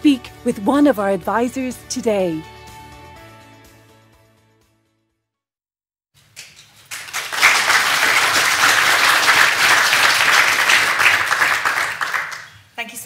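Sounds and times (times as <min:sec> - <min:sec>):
audience applauding: 0:06.4 - 0:12.6.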